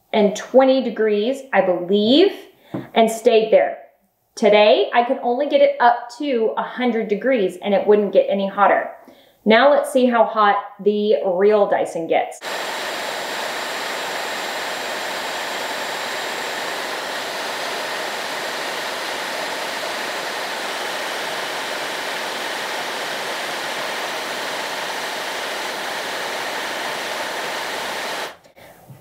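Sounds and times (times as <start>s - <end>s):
hair dryer blowing air: 12.4s - 29.0s.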